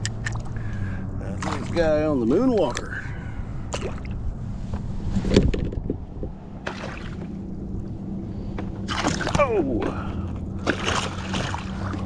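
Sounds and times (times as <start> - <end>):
steady low hum: 0.0 - 12.0
short water splash: 1.4 - 1.8, 6.6 - 7.3, 8.9 - 9.5, 10.6 - 12.0.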